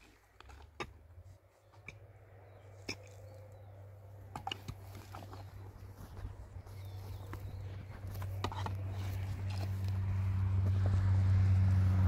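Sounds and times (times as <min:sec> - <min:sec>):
pickaxe and shovel digging soil: 0:00.0 - 0:03.6, 0:04.2 - 0:06.2, 0:06.8 - 0:11.0.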